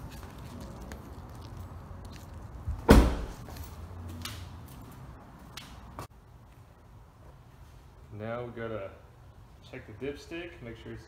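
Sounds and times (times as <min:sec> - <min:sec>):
door shutting with heavy thud: 0:02.8 - 0:03.4.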